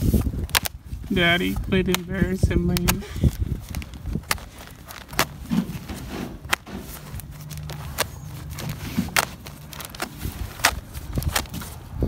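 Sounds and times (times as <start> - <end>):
plastic wrapping crinkling: 0.0 - 12.0
knife slitting plastic: 2.8 - 11.8.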